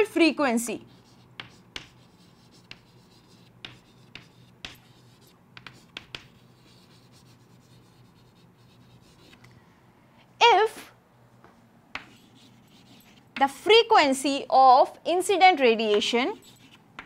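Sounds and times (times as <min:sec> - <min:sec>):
faint steady hum: 0:00.0 - 0:17.0
chalk scratching on chalkboard: 0:00.8 - 0:09.4, 0:12.0 - 0:13.7, 0:16.0 - 0:16.8.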